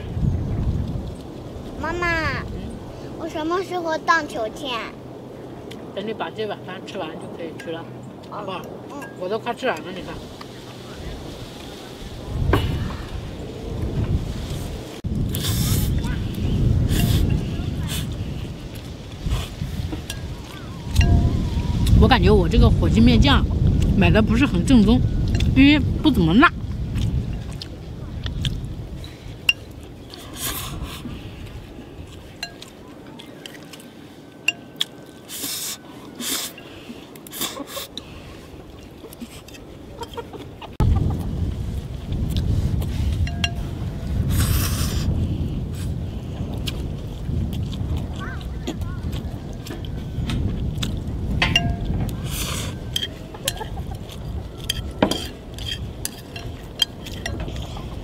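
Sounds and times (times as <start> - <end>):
person slurping noodles: 15.3 - 16.0
chopsticks scraping bowl: 54.6 - 57.8.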